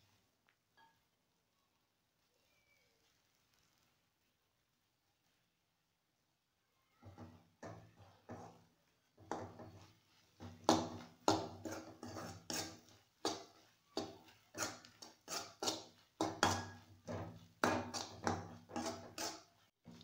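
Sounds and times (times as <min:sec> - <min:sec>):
metal fork scraping a pan: 0:07.6 - 0:08.6, 0:09.3 - 0:20.0.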